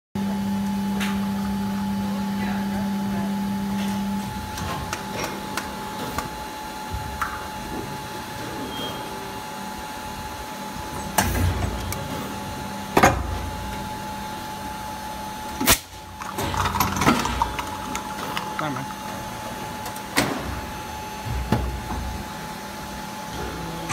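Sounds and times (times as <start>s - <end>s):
machine hum with whine: 0.2s - 23.9s
plastic cups clattering: 16.2s - 19.3s.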